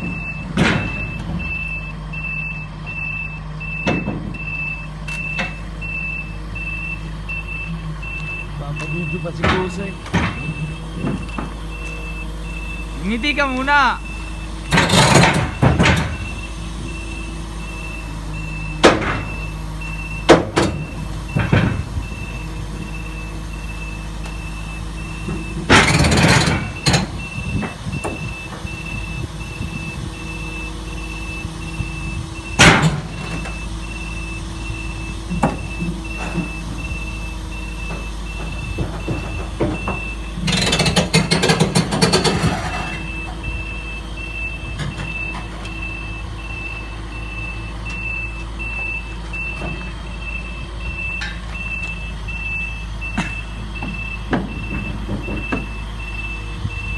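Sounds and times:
reversing alarm beeping: 0.0 - 41.0, 42.1 - 56.9
diesel engine idling: 0.0 - 56.9
metal clanks and rattling: 9.3 - 11.7, 14.6 - 16.4, 20.3 - 22.3, 25.2 - 28.8, 32.4 - 33.6, 35.3 - 43.5.

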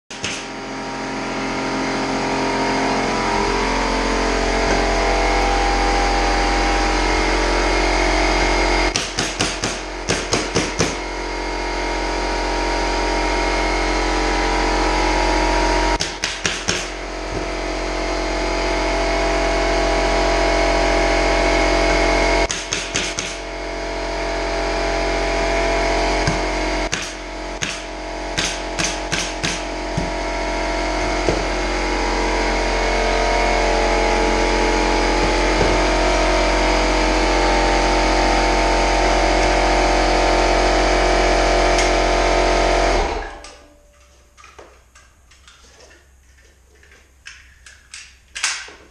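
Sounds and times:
air compressor drone: 0.1 - 44.8
pneumatic staple gun firing: 22.5 - 23.4, 26.9 - 29.7.

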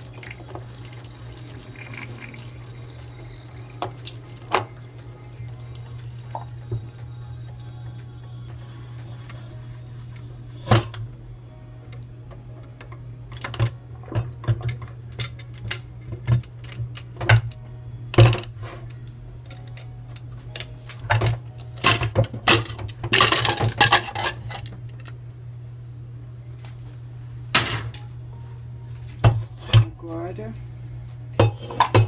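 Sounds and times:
lid clattering and scraping: 21.2 - 24.7, 31.4 - 32.0.

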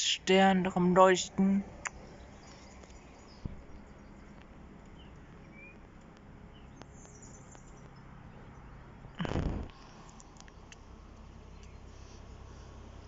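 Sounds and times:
faint bird chirps: 1.7 - 9.2, 11.4 - 12.1.

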